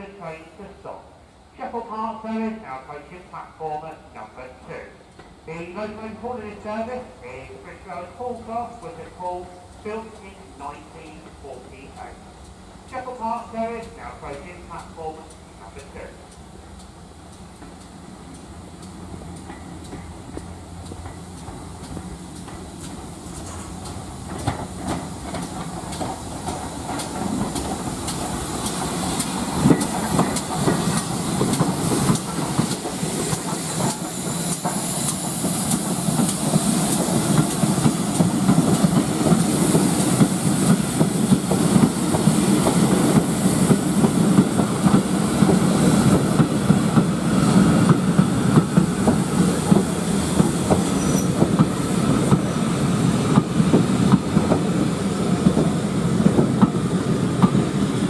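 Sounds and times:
steam hiss: 0.3s - 58.0s
train wheels clattering on rail joints: 5.1s - 5.5s, 12.1s - 58.0s.

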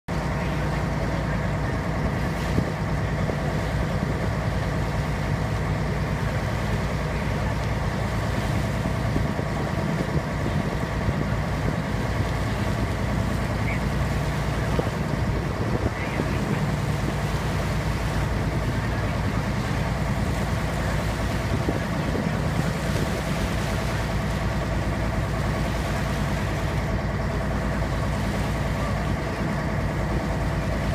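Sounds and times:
motorboat engine running: 0.1s - 30.9s
water rushing along hull: 0.1s - 30.9s.

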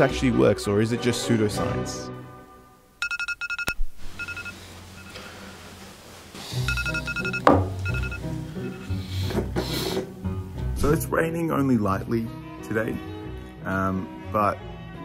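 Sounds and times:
background music: 0.0s - 3.0s, 6.4s - 15.0s
phone alarm beeping: 3.0s - 5.4s, 6.6s - 9.0s.

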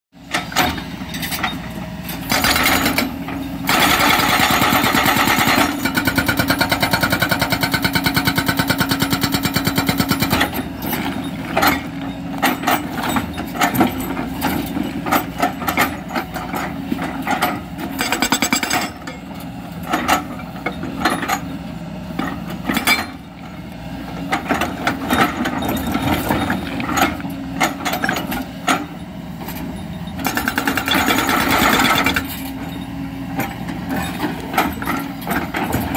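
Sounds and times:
excavator engine running: 0.2s - 35.9s
hydraulic breaker hammering stone: 2.3s - 10.7s, 17.2s - 19.0s, 30.2s - 32.4s.

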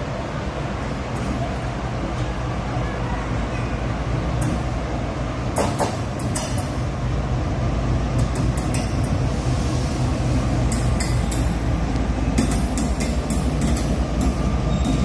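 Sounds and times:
diesel locomotive engine rumble: 0.0s - 15.0s
train wheels clicking on rails: 4.2s - 7.0s, 8.0s - 15.0s.

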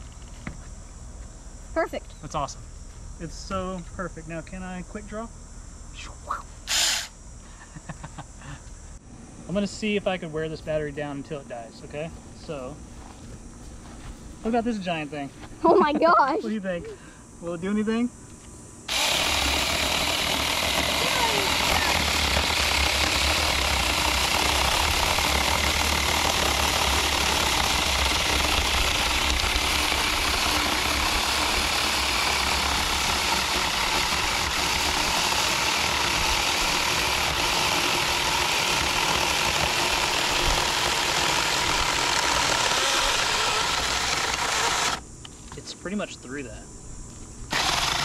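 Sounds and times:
cordless chainsaw cutting wood: 6.7s - 7.1s, 18.9s - 45.0s, 47.5s - 48.0s.

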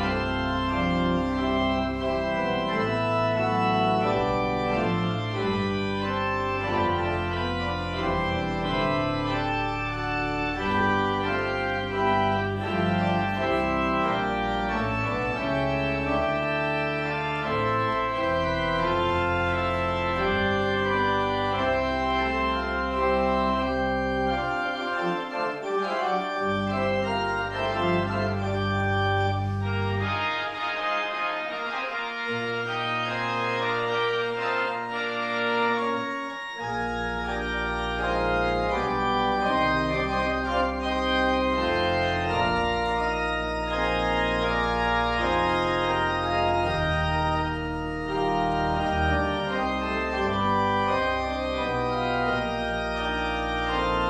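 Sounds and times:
church organ chords: 0.0s - 54.0s.

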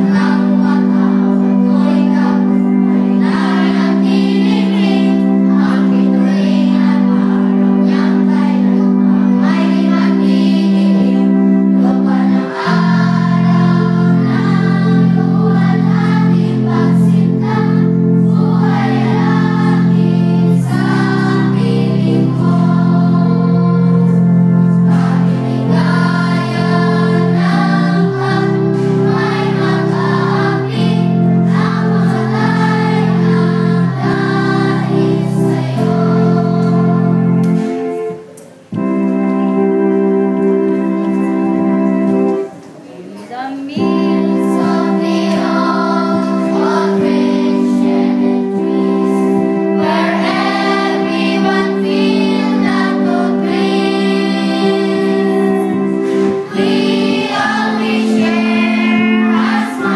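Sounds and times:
children singing together: 0.0s - 59.9s
held instrumental chords: 0.0s - 59.9s.

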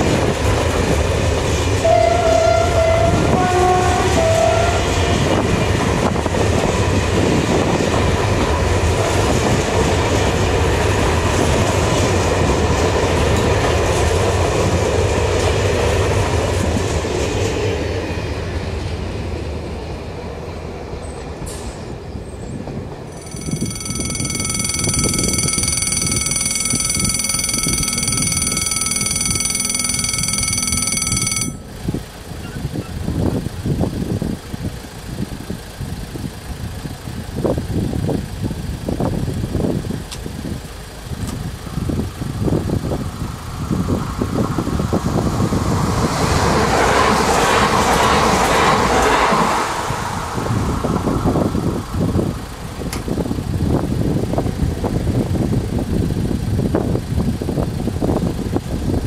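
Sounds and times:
train passing: 0.0s - 32.4s, 40.6s - 52.9s
level crossing warning ringer: 23.1s - 31.8s.

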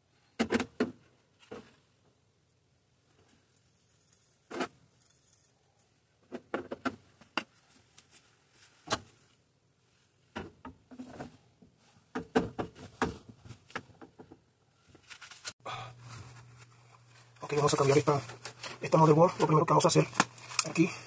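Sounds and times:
plastic pipe knocks and clicks: 12.1s - 14.4s.

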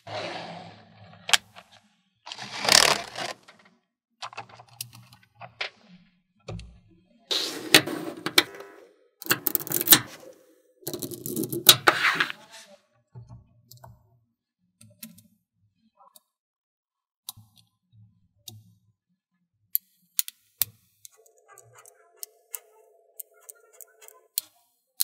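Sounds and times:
magnetic balls clicking: 21.1s - 24.6s.

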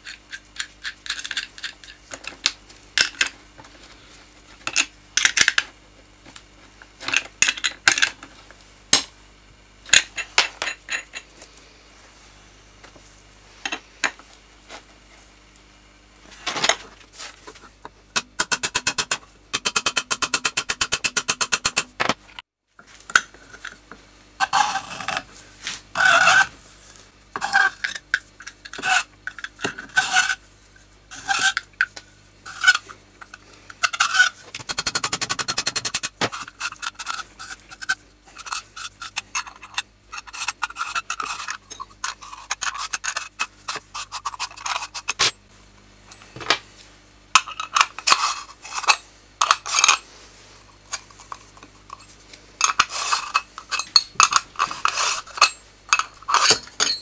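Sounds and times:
spanner clinking and scraping metal: 31.1s - 45.4s, 47.4s - 50.1s, 50.9s - 57.0s.

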